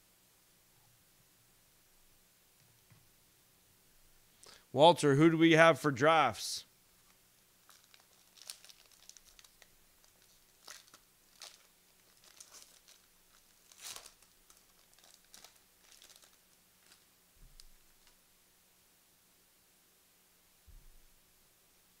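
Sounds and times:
card packaging crinkling: 7.6s - 18.2s.

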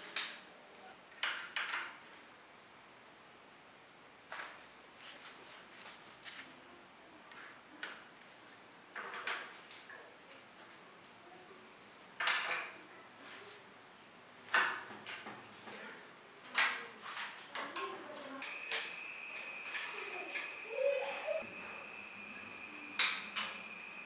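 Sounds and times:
steady high tone: 18.4s - 24.0s.

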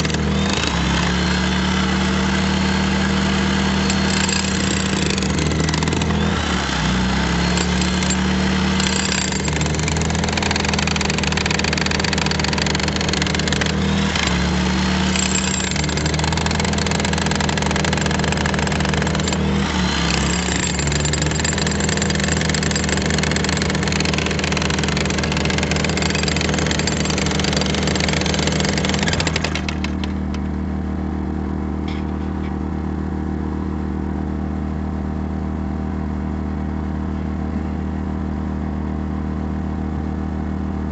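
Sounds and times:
demolition hammer chipping concrete: 0.0s - 30.2s
steady engine hum: 0.0s - 40.9s.

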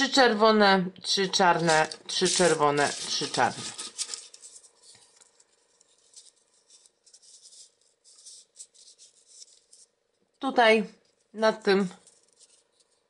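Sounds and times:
paper rustling: 1.2s - 10.2s, 11.9s - 13.0s
paper modules clicking: 1.4s - 4.4s.

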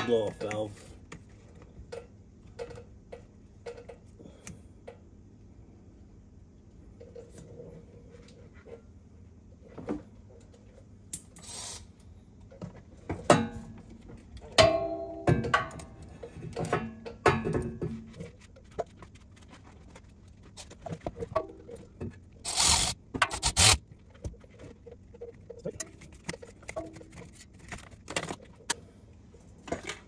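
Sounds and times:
ratchet scraping and clicking: 11.4s - 11.9s, 22.4s - 23.8s
ratchet rasping bursts: 22.4s - 23.8s.

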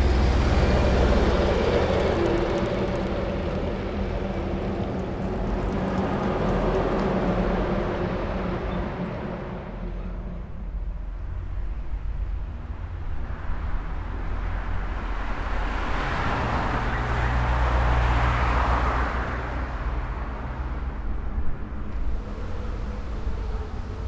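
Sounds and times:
car passing by: 13.4s - 24.0s.

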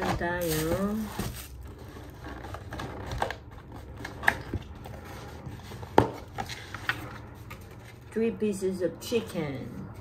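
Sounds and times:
food packaging rustling: 0.0s - 5.1s.

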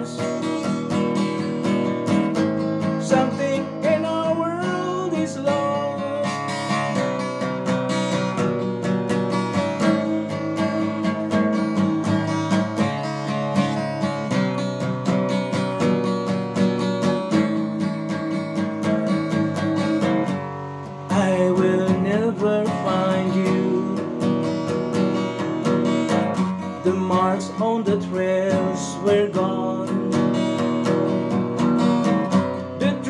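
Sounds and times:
man singing: 0.0s - 1.0s, 3.0s - 7.0s, 21.0s - 24.8s, 26.6s - 30.7s, 32.8s - 33.0s
acoustic guitar strumming chords: 0.0s - 33.0s.

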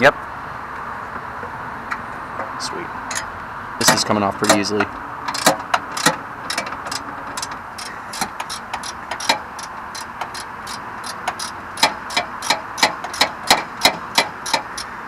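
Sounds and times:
socket ratchet clicking: 5.3s - 15.0s.

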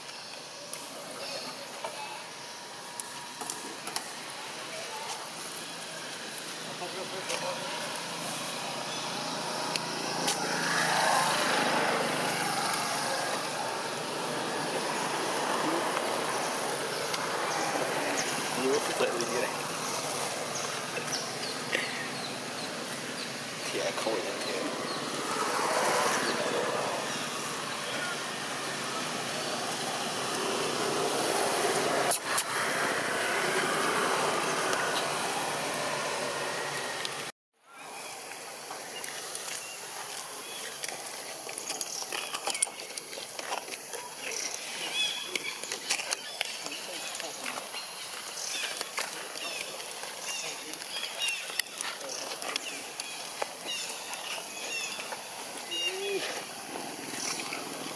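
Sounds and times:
road traffic noise: 0.0s - 57.9s
distant engine drone: 0.8s - 37.3s
vehicle passing: 6.6s - 37.3s.

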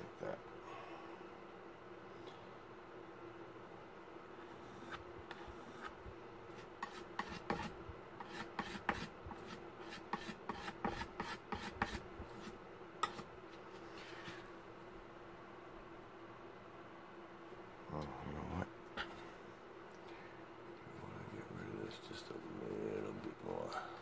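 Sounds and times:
faint steady hum: 0.0s - 24.0s
palette knife scraping paint: 4.4s - 14.5s.

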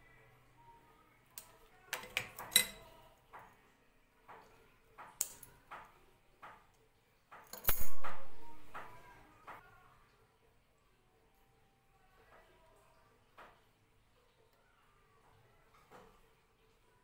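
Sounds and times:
metallic clicks and clinks: 1.9s - 3.0s, 7.4s - 8.3s.

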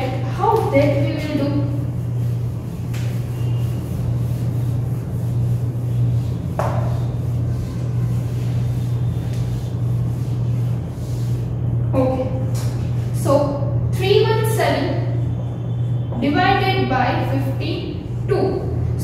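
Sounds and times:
eraser rubbing whiteboard: 0.0s - 11.7s
loud steady low hum: 0.0s - 19.0s.

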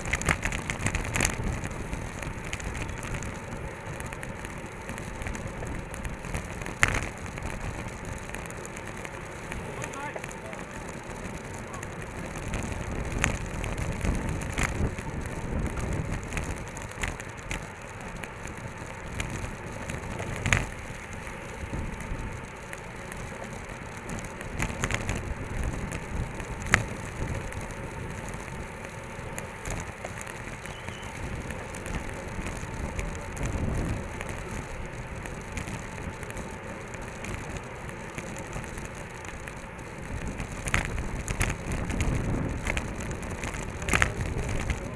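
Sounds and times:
bicycle tyres on asphalt: 0.0s - 44.9s
sharp clicks and rattles: 0.0s - 44.9s
wind buffeting microphone: 10.9s - 17.6s, 24.0s - 36.4s, 37.1s - 44.9s.

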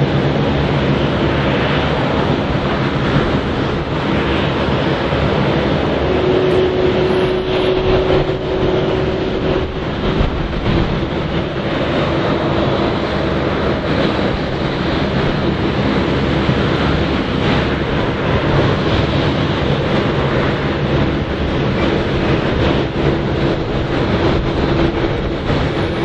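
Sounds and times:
jet engines at takeoff thrust: 0.0s - 26.0s
steady tone: 4.3s - 13.6s.

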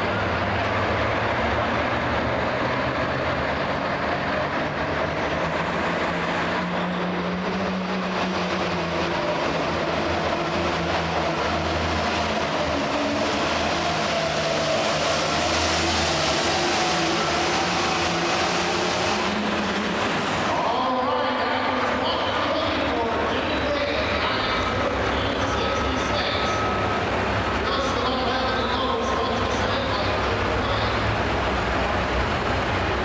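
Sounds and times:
diesel tractor engine under load: 0.0s - 33.0s.

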